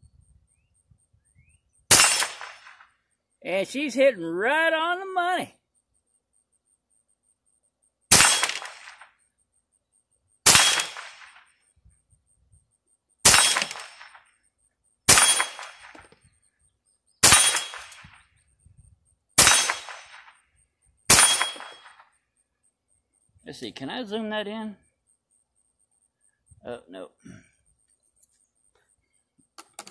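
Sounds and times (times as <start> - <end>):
rifle shots cracking: 1.9 - 2.8, 8.1 - 9.1, 10.4 - 11.5, 13.2 - 14.2, 15.1 - 16.1, 17.2 - 18.2, 19.4 - 20.3, 21.1 - 22.0.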